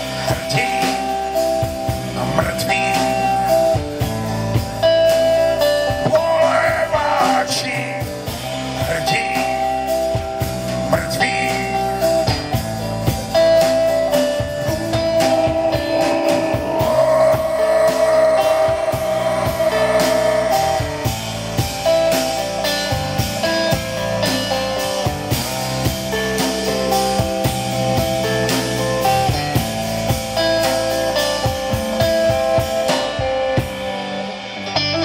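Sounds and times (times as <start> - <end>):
live blues band playing: 0.0 - 35.0
harmonica bending held notes: 12.8 - 24.8.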